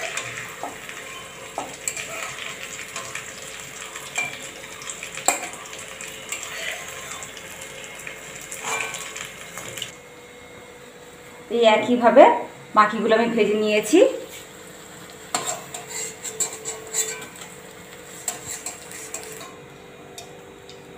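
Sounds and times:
patties sizzling in hot oil: 0:00.0 - 0:10.0, 0:13.7 - 0:20.9
metal spatula scraping pan: 0:15.4 - 0:17.4, 0:18.2 - 0:19.5.

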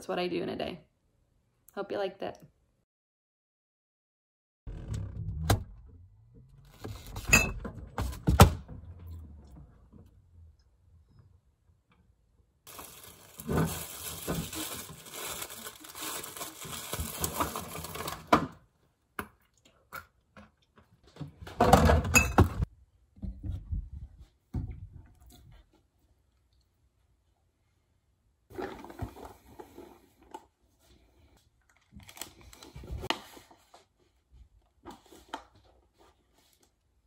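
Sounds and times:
kitchen knocks and clatter: 0:21.3 - 0:25.0.

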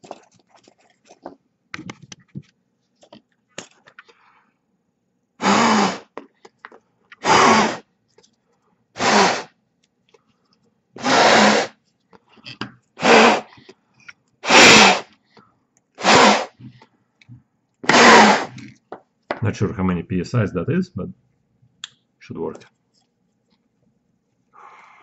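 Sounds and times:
air blower puffs: 0:05.4 - 0:06.2, 0:07.2 - 0:07.8, 0:09.0 - 0:09.5, 0:11.0 - 0:11.8, 0:13.0 - 0:13.7, 0:14.4 - 0:15.1, 0:16.0 - 0:16.8, 0:17.8 - 0:18.6.

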